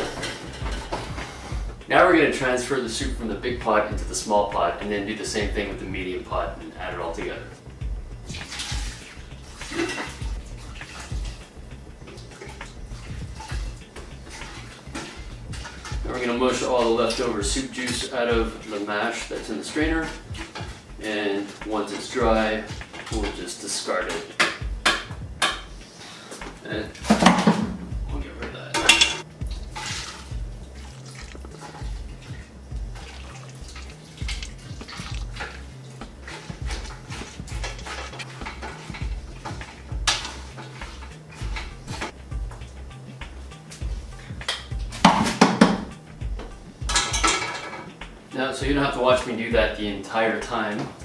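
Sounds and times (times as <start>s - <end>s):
broth dripping into pot: 7.6s - 16.3s, 28.9s - 45.2s
liquid pouring and splashing: 8.2s - 23.4s, 28.9s - 42.2s
wet squelching in a strainer: 8.2s - 24.4s, 28.9s - 43.0s.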